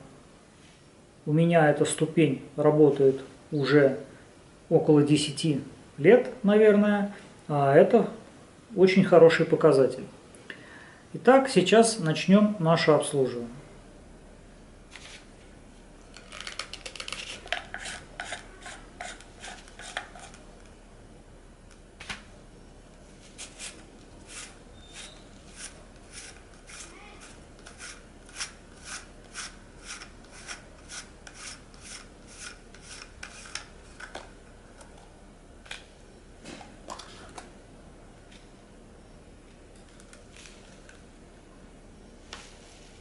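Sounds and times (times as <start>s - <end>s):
plastic parts rubbing: 16.1s - 20.4s, 23.4s - 34.2s.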